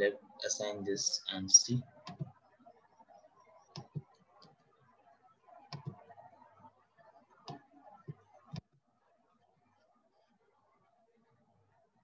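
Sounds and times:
computer mouse clicks: 0:02.0 - 0:02.4, 0:05.7 - 0:06.0.

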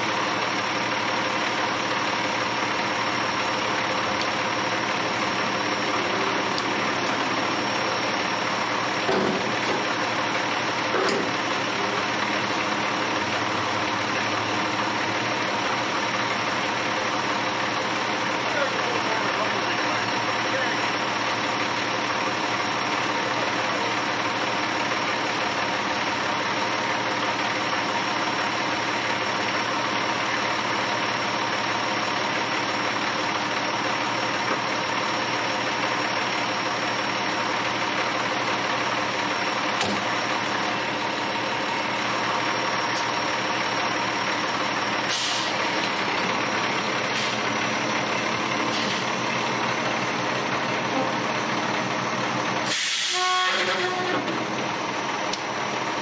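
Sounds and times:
diesel engine running: 0:00.0 - 0:56.0
loud air hiss: 0:45.1 - 0:45.6, 0:52.7 - 0:53.4.

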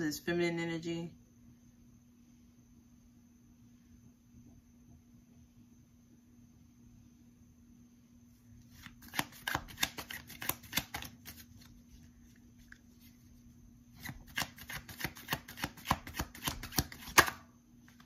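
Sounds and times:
faint steady hum: 0:00.0 - 0:18.0
cards being shuffled: 0:08.6 - 0:13.4, 0:14.0 - 0:18.0.

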